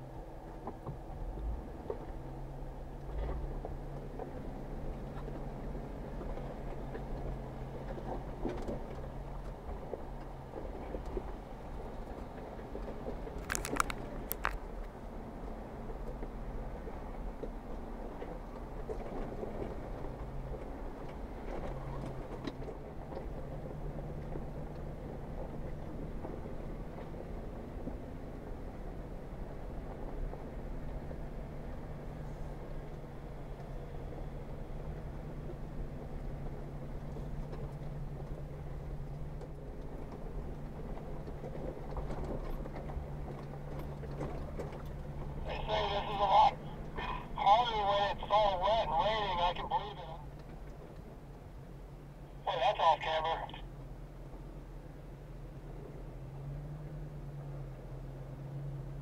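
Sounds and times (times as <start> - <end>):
car engine running at low speed: 0.0 - 59.0
knocks and rattles over rocks: 12.2 - 14.7.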